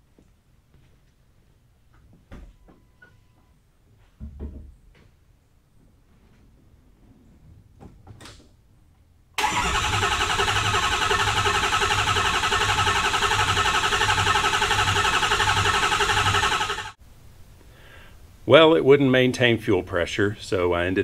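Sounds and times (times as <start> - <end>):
starter cranking engine: 9.4 - 17.0.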